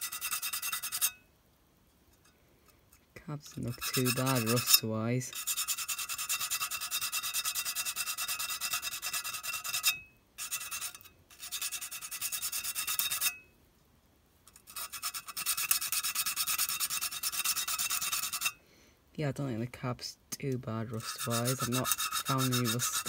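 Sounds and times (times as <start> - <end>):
sandpaper rubbing on metal: 0.0 - 1.1, 3.6 - 13.3, 14.7 - 18.5, 20.9 - 23.0.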